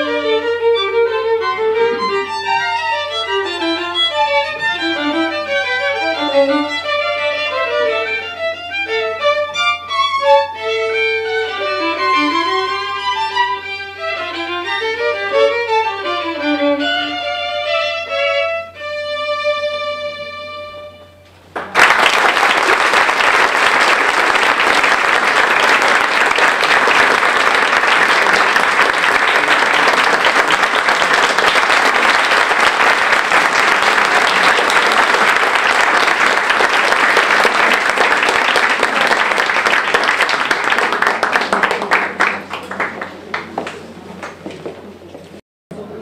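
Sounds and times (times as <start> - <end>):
audience applauding: 21.5 - 44.6.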